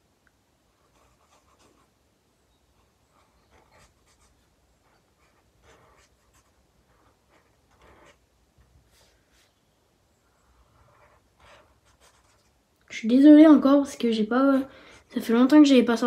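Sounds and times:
marker scratching on paper: 0.8 - 1.9, 2.8 - 8.2, 10.6 - 12.6.

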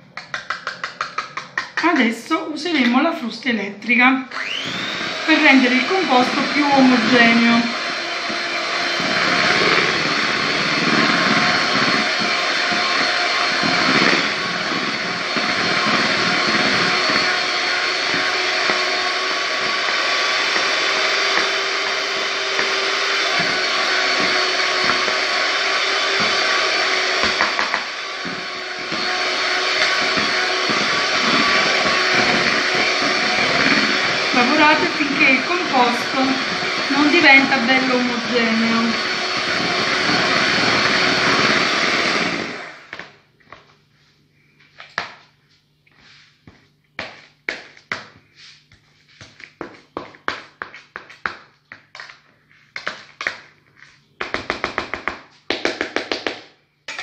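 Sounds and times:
electric hand mixer whisking: 0.2 - 3.1, 4.3 - 43.2.

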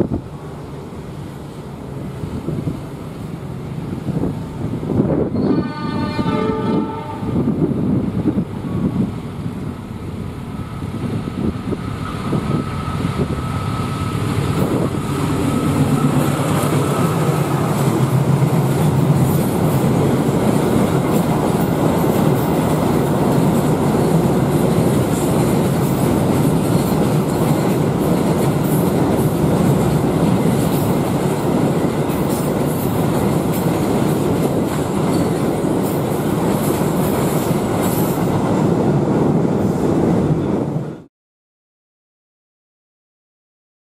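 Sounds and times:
diesel locomotive engine: 0.0 - 41.1
train wheels on rails clicking: 13.0 - 38.6.

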